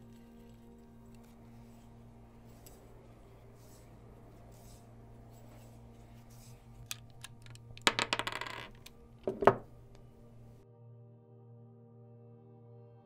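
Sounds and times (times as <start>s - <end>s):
small hard parts clicking: 6.8s - 10.2s.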